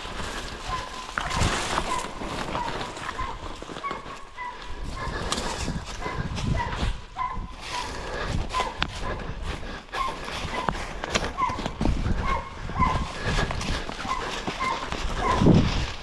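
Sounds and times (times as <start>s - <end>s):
distant dogs barking: 0.0s - 16.0s.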